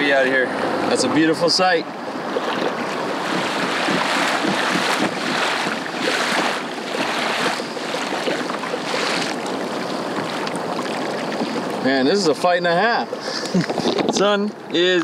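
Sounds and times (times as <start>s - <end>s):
wind on microphone: 2.0s - 11.8s
water splashing against kayak hull: 2.2s - 11.9s.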